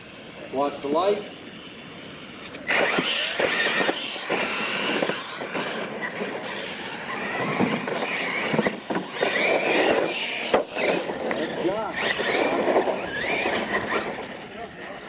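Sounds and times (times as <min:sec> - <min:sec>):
electric motors whining: 0:00.0 - 0:15.0
tyres scrabbling over dirt: 0:02.6 - 0:14.6.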